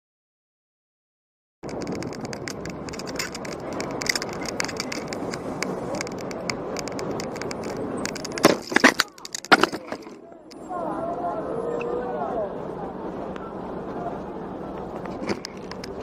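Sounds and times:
bicycle frame rattling: 0:01.6 - 0:10.2
traffic noise: 0:01.6 - 0:16.0
bike crashing knocks and scrapes: 0:08.0 - 0:10.2.

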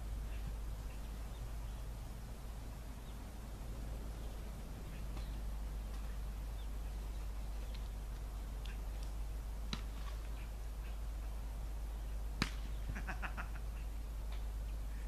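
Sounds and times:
low steady rumble: 0:00.0 - 0:15.0
sharp smack: 0:12.4 - 0:12.8.

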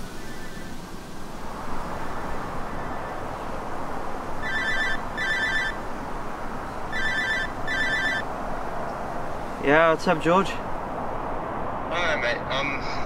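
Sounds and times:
steady background noise: 0:00.0 - 0:13.0
phone ringing: 0:04.4 - 0:05.8, 0:06.9 - 0:08.2.

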